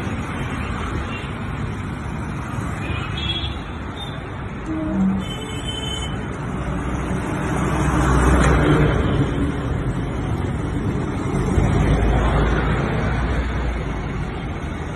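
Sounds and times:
bus engine rumble: 0:03.8 - 0:14.9.

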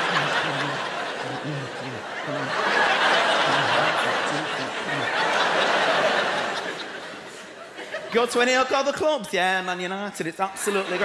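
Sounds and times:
audience laughing: 0:00.0 - 0:08.4, 0:10.6 - 0:11.0.

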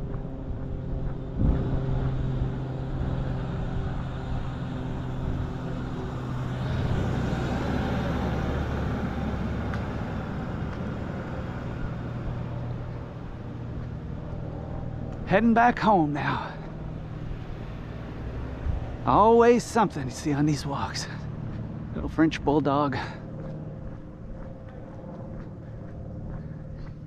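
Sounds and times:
car engine humming: 0:00.0 - 0:27.0
car driving past: 0:01.4 - 0:15.1.

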